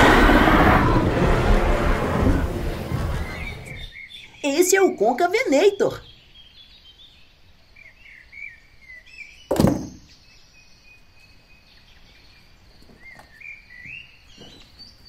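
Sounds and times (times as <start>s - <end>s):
birds chirping faintly: 1.9s - 15.0s
toy thumping down: 9.5s - 10.0s.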